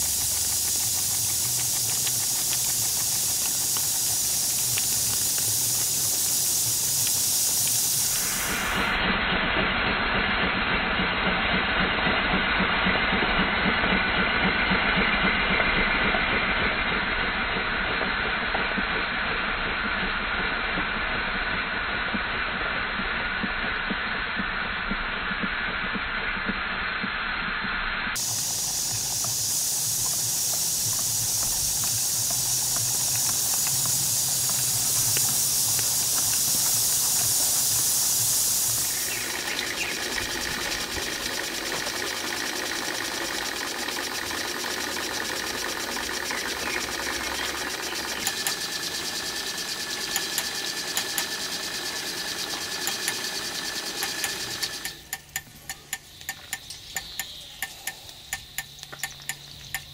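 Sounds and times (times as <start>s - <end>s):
sharp clicks: 0.0s - 9.0s, 28.2s - 59.9s
model steam engine running: 0.0s - 59.9s
steam hissing: 0.0s - 59.9s.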